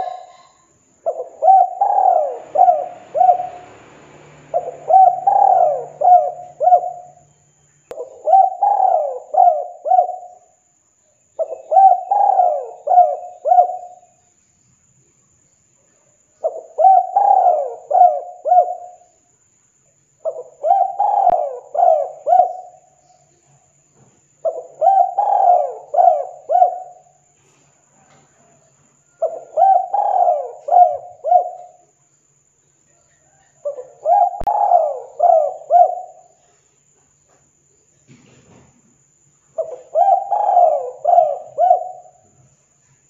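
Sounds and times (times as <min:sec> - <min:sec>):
dove cooing: 0:00.0 - 0:07.3, 0:07.9 - 0:10.5, 0:11.4 - 0:14.1, 0:16.4 - 0:19.0, 0:20.2 - 0:23.0, 0:24.4 - 0:27.2, 0:28.4 - 0:31.8, 0:33.2 - 0:36.6, 0:39.6 - 0:42.4.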